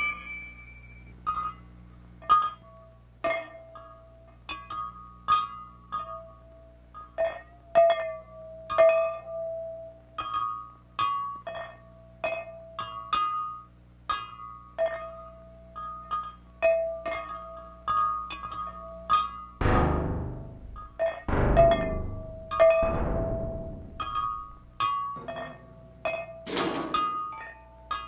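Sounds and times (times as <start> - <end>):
steady low hum: 19.6 - 26.1
struck ringing percussion tones: 19.6 - 26.3.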